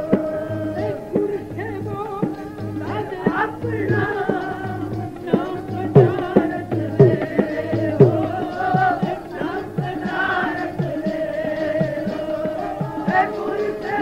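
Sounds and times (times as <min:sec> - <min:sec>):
devotional singing: 0:00.0 - 0:14.0
harmonium drone: 0:00.0 - 0:14.0
tabla beat: 0:00.0 - 0:14.0.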